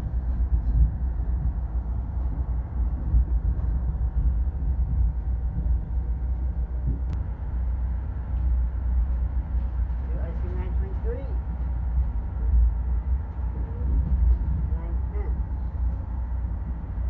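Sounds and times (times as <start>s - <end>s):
train car rumbling on track: 0.0s - 17.0s.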